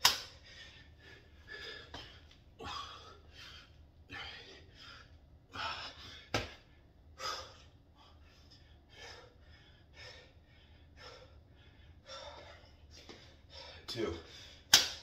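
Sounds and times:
man breathing hard: 0:00.1 - 0:14.8.

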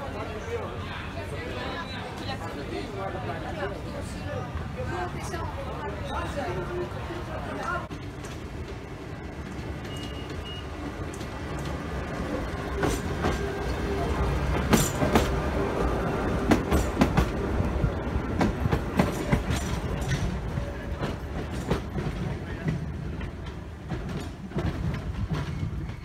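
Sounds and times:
tram rumbling: 0:00.0 - 0:26.0
wheels clacking over rail joints: 0:07.6 - 0:26.0.

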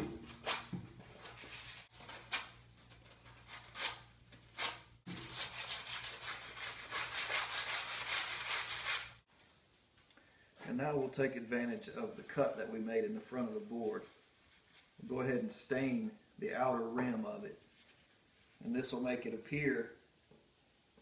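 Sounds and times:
hand sanding wood: 0:04.6 - 0:09.2.

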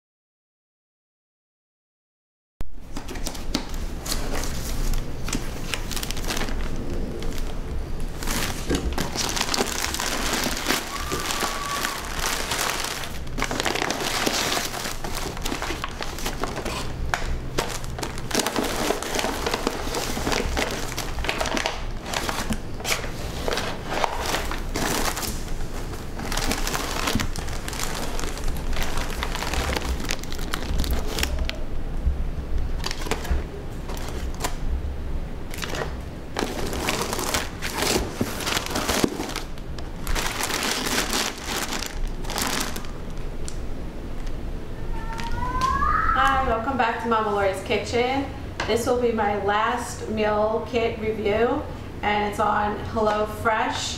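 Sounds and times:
paper and plastic crinkling: 0:02.9 - 0:31.6, 0:32.8 - 0:34.6, 0:35.5 - 0:43.6.

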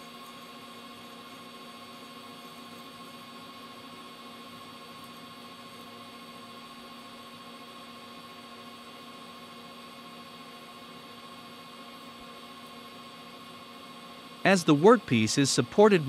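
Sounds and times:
metal lathe humming with whine: 0:00.0 - 0:16.0.

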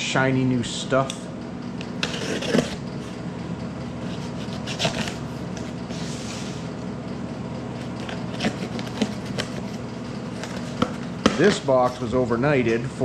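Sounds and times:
steady low hum: 0:00.0 - 0:13.0
packing tape slit with knife: 0:04.2 - 0:05.2, 0:08.0 - 0:09.7.

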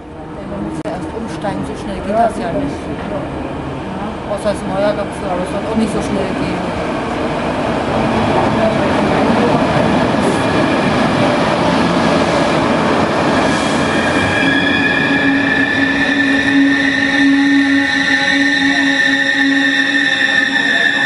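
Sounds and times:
train wheels rushing on rail: 0:00.4 - 0:21.0
train brakes squealing: 0:13.5 - 0:21.0.

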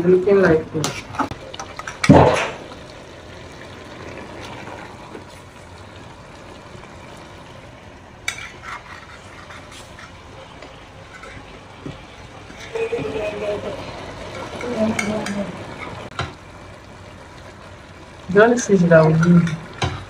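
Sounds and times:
soft steady liquid sound: 0:00.0 - 0:20.0
splash and knock in pot: 0:01.8 - 0:02.8.

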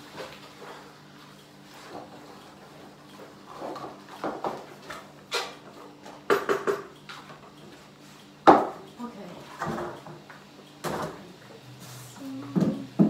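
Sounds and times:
kitchen knocks and clinks: 0:06.3 - 0:06.9.

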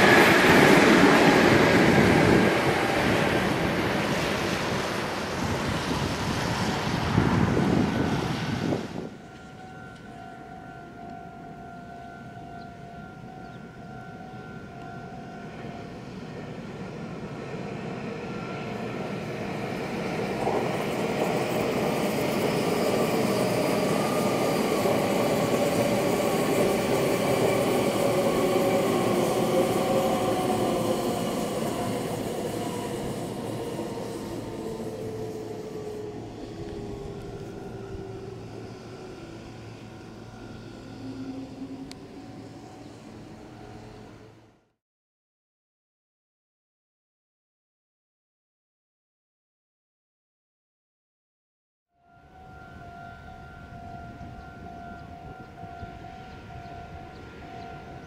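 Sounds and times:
train rail rumble: 0:00.0 - 0:44.6
electric train motor whine: 0:00.0 - 0:44.7.

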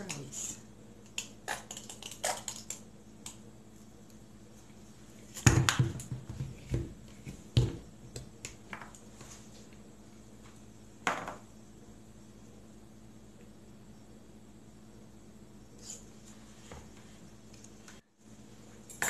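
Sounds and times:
tableware knocking on wood: 0:11.0 - 0:11.4.

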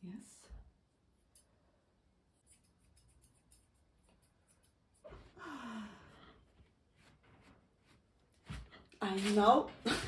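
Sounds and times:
grooming scissors clicking: 0:02.4 - 0:05.1
breathy sigh: 0:05.2 - 0:06.4.

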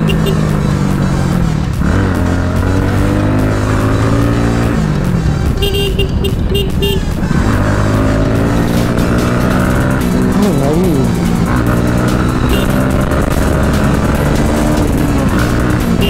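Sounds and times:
motorcycle engine running: 0:00.0 - 0:16.0
short horn beeps: 0:12.4 - 0:12.8.

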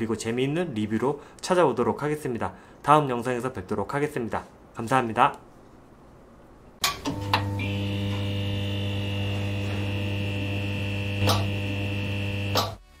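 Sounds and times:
neon sign buzzing: 0:06.8 - 0:12.9.

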